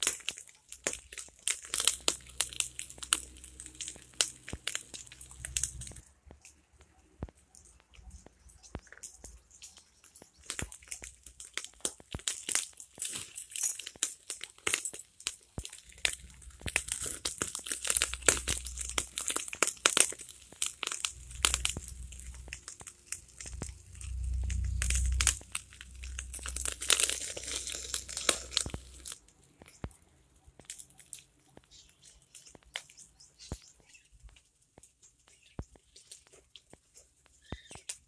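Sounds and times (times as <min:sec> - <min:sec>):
wood fire crackling: 0:00.0 - 0:38.0
low rumble: 0:21.0 - 0:29.0.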